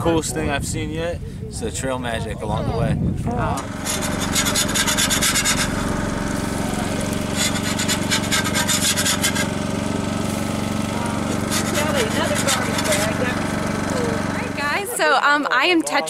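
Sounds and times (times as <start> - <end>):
steady low hum: 2.9 - 15.0.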